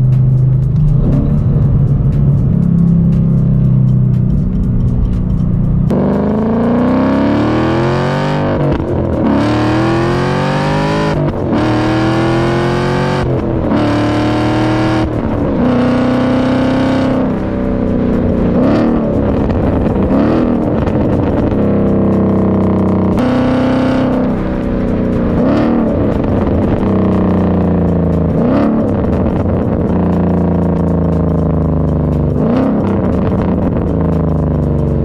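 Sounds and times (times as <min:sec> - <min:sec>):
car exhaust accelerating through shifts: 0:00.0 - 0:35.0
engine throttle blips: 0:00.0 - 0:35.0.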